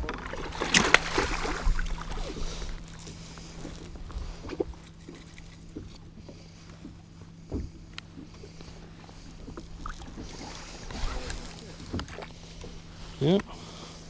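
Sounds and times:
steady low hum: 0:00.0 - 0:14.0
water splashing against boat: 0:00.0 - 0:14.0
knocks against boat: 0:05.7 - 0:08.6, 0:11.8 - 0:12.3.

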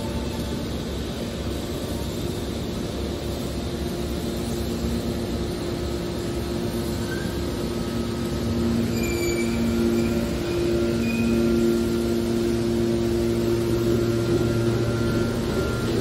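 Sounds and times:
scrap baler mechanical hum: 0:00.0 - 0:16.0
short high squeals: 0:08.8 - 0:11.9.

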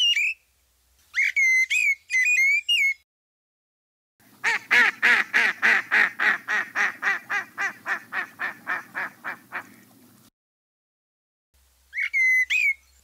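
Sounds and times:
duck quacking: 0:04.4 - 0:09.9.

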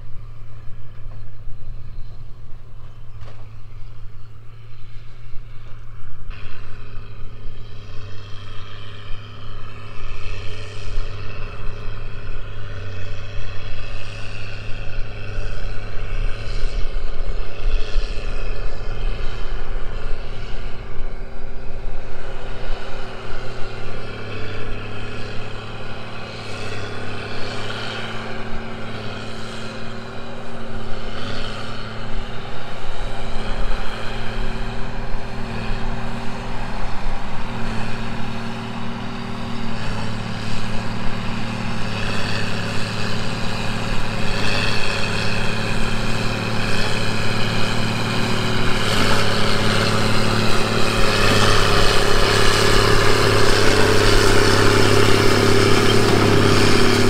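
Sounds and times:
tractor diesel engine droning: 0:00.0 - 0:57.0.

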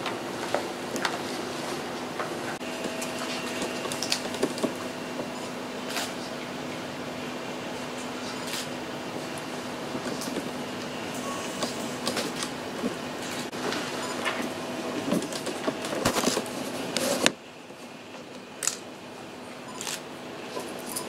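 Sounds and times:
steady hum: 0:00.0 - 0:21.0
paper rustling: 0:15.2 - 0:17.3.

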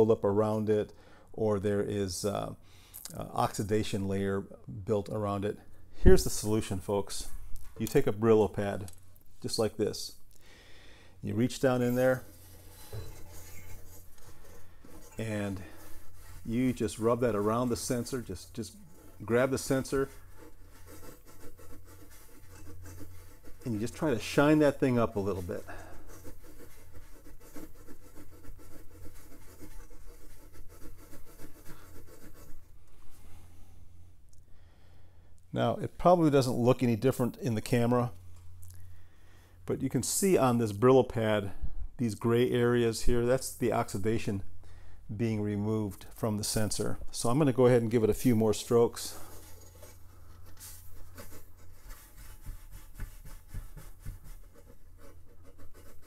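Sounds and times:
steel wool scrubbing metal: 0:11.3 - 0:32.6.

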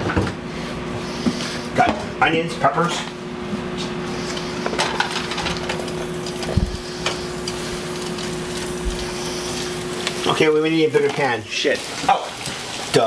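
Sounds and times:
steady low hum: 0:00.0 - 0:11.0
vegetables sizzling in a frying pan: 0:05.0 - 0:13.0.

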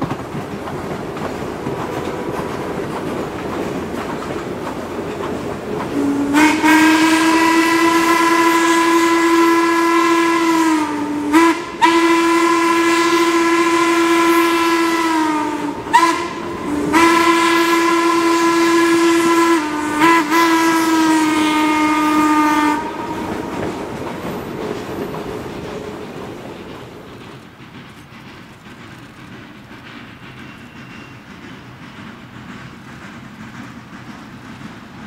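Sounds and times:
train wheels clicking over rail joints: 0:00.0 - 0:35.0
steam locomotive whistle blasts: 0:05.9 - 0:23.9.

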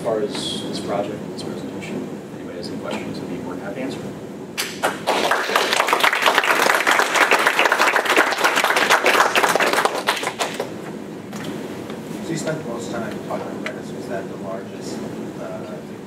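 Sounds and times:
audience applauding: 0:04.6 - 0:10.8.

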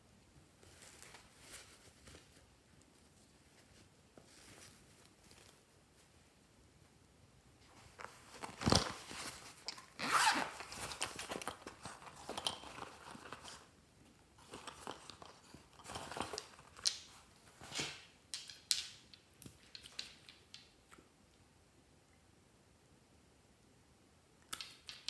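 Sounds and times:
rustling and rummaging: 0:00.6 - 0:06.2, 0:07.6 - 0:20.6
zipper pulled open: 0:09.9 - 0:10.7.

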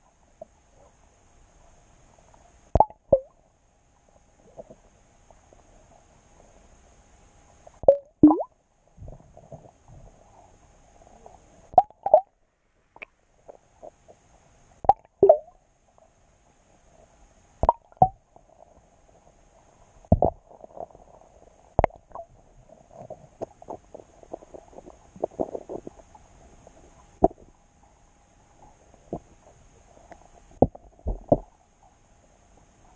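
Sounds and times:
faint low underwater rumbling: 0:00.0 - 0:32.9
underwater plops: 0:02.8 - 0:03.3, 0:07.8 - 0:08.5, 0:11.7 - 0:12.3, 0:14.8 - 0:15.5, 0:17.6 - 0:18.2, 0:21.8 - 0:22.2.

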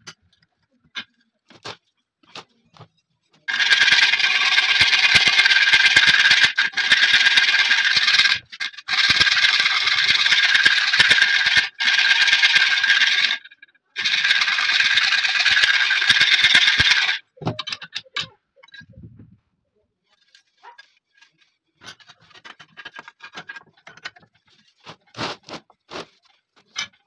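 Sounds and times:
hand file rasping on metal: 0:03.5 - 0:17.2, 0:20.2 - 0:27.0.

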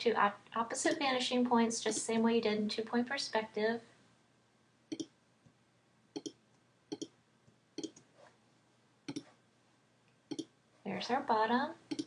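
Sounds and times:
computer mouse double clicks: 0:09.1 - 0:09.3.

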